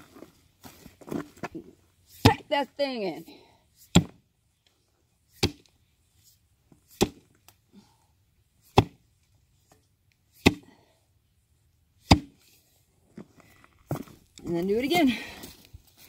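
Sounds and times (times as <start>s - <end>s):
sledgehammer thudding on dirt: 1.6s - 2.5s, 3.8s - 4.2s, 5.3s - 5.7s, 6.8s - 7.3s, 8.6s - 9.1s, 10.3s - 10.8s, 12.0s - 12.5s.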